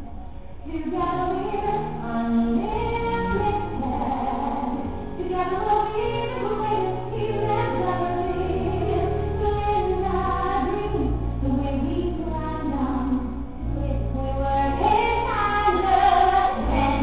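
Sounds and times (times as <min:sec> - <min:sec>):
women singing: 0:00.7 - 0:17.0.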